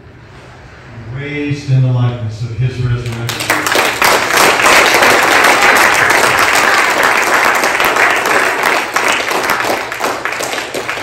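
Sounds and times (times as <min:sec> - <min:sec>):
congregation applauding: 0:03.0 - 0:11.0.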